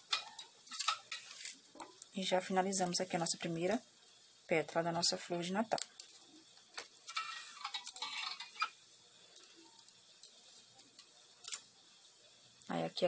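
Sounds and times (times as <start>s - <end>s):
yarn and wire rustling: 0.0s - 3.8s, 5.6s - 11.7s.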